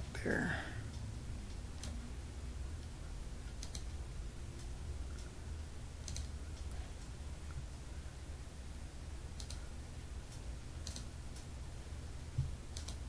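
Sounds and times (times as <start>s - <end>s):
low steady hum: 0.0s - 13.0s
computer mouse clicking: 2.8s - 4.0s, 6.0s - 7.6s, 9.3s - 9.7s, 10.3s - 11.5s, 12.4s - 13.0s.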